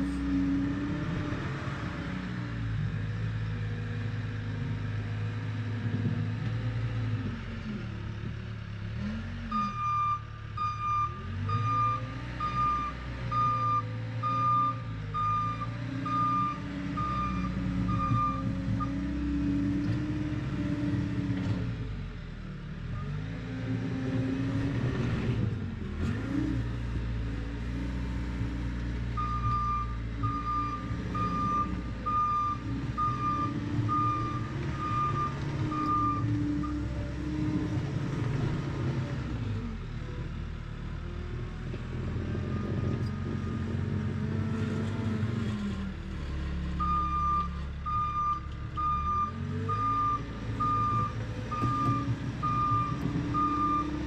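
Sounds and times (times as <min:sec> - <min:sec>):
reversing alarm beeps: 0:09.5 - 0:19.0, 0:29.2 - 0:36.8, 0:46.8 - 0:54.0
trencher engine revving: 0:22.8 - 0:54.0.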